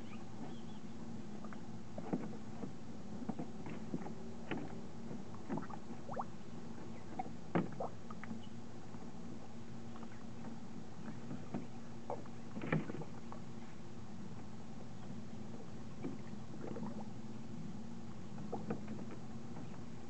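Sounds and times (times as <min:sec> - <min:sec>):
steady low hum: 0:00.0 - 0:20.0
water splashing in pool: 0:05.5 - 0:06.3.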